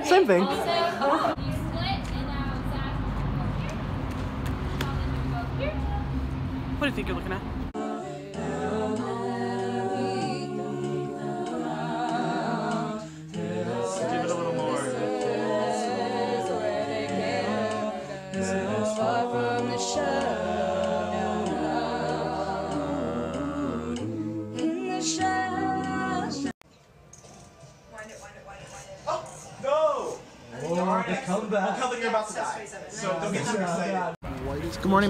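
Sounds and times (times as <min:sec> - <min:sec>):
a cappella group singing: 0:07.7 - 0:26.6.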